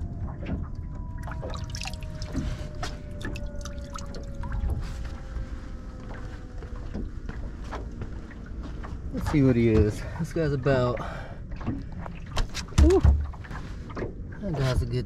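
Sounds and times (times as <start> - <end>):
faint whine falling in pitch: 0.0 - 9.2
low rumble: 0.0 - 15.0
water splashing against boat: 0.0 - 15.0.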